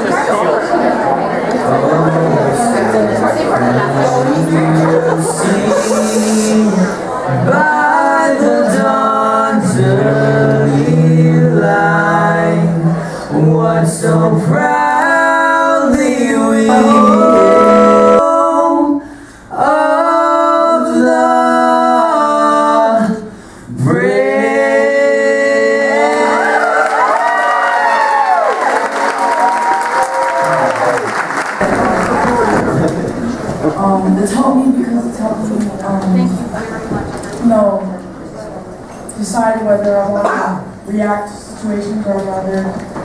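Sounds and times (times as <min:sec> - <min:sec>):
young men singing: 0:01.7 - 0:26.8.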